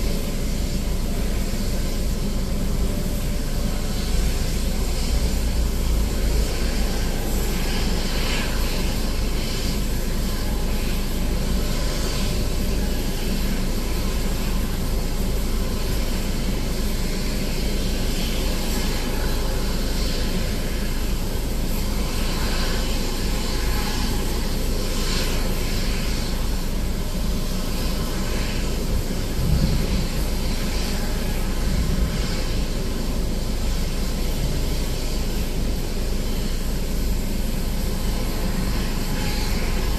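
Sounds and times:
even hiss: 0.0s - 39.9s
deep rumble: 28.9s - 30.4s.

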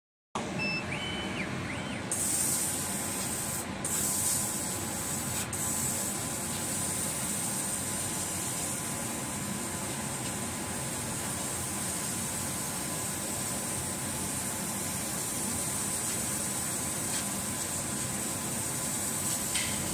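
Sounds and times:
laser cutter hum: 0.4s - 7.2s, 16.7s - 19.9s.

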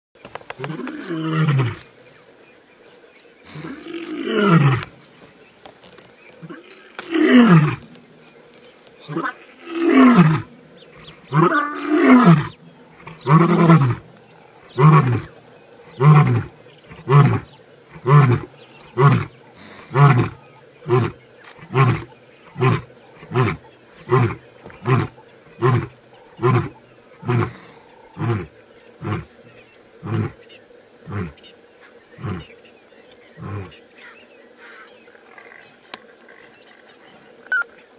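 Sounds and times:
lion grunting calls: 3.4s - 4.9s, 6.4s - 7.9s, 9.0s - 29.4s, 30.0s - 30.4s, 31.0s - 31.4s, 32.2s - 32.6s, 33.4s - 33.8s
lion roaring: 3.5s - 4.9s, 6.4s - 7.9s, 9.1s - 15.3s, 15.9s - 29.3s.

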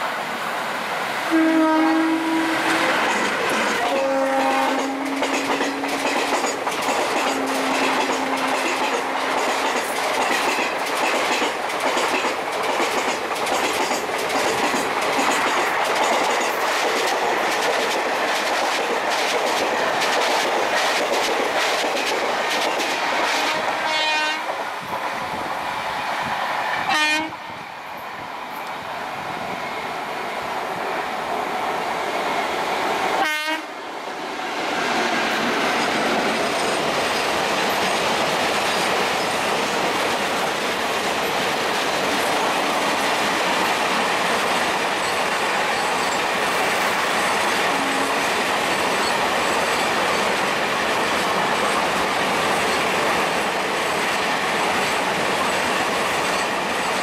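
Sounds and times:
train wheels rushing past: 0.0s - 57.0s
locomotive horn blasts: 1.3s - 2.9s, 3.8s - 5.9s, 23.0s - 24.5s, 26.9s - 27.4s, 33.2s - 33.7s
short locomotive horn blasts: 1.3s - 2.9s, 3.8s - 5.8s, 23.0s - 24.5s, 26.9s - 27.4s, 33.2s - 33.7s
wheels clacking over rail joints: 2.5s - 24.0s.

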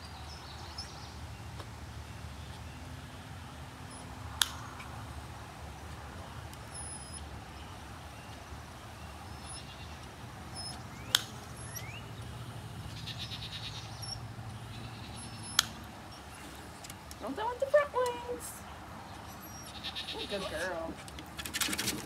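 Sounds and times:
nail clippers snipping: 15.5s - 15.8s.

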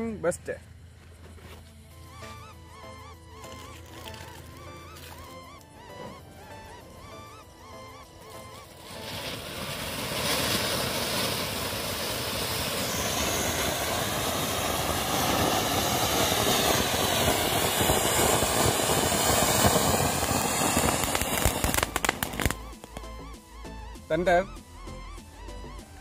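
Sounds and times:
firework fountain hissing and crackling: 8.2s - 23.2s.

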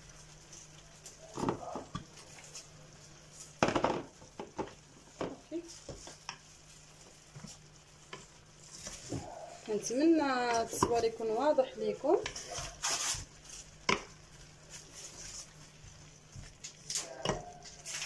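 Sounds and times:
onion slices rustling: 5.4s - 18.0s.

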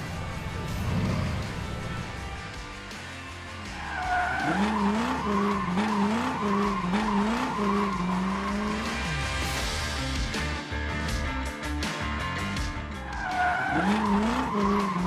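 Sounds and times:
race car engine revving: 0.0s - 2.8s, 3.4s - 9.7s, 13.2s - 15.0s.

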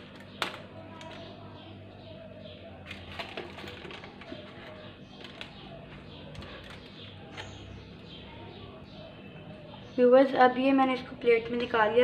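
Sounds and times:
aluminium foil crinkling: 2.8s - 7.5s.

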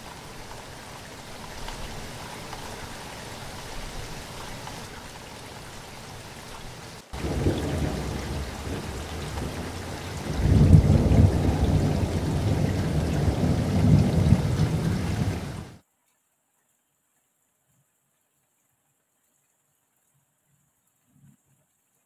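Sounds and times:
heavy rain falling: 0.0s - 15.8s
deep thunder rumble: 7.2s - 15.8s.

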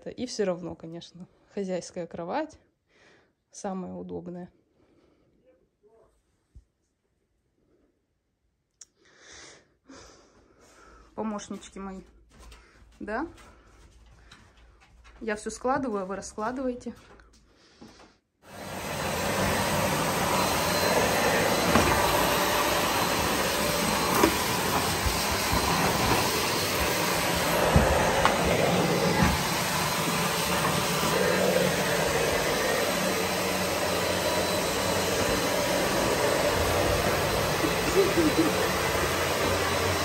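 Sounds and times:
vacuum cleaner running: 18.5s - 40.0s.

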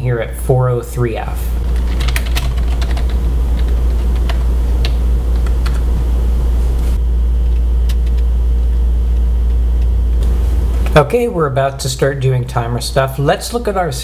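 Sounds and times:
steady low hum: 0.0s - 14.0s
computer keyboard keys clicking: 1.7s - 5.9s.

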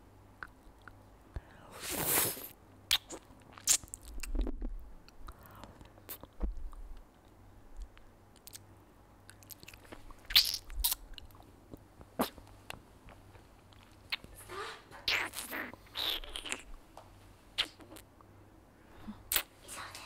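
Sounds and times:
lip smacks and tongue clicks: 0.4s - 1.6s, 2.9s - 14.4s, 19.3s - 19.5s.

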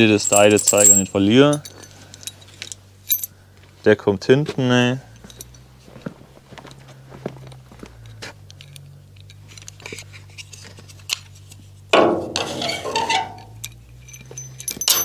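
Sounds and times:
metallic scraping rattle: 0.0s - 3.3s, 8.6s - 15.0s
low steady hum: 0.0s - 15.0s.

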